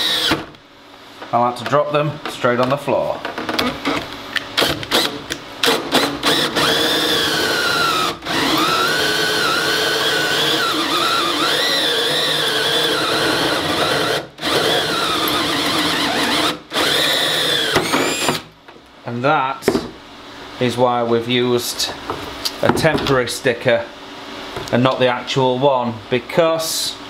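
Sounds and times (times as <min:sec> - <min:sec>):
drill hole saw squealing into metal: 0:00.0 - 0:00.4, 0:05.7 - 0:18.4.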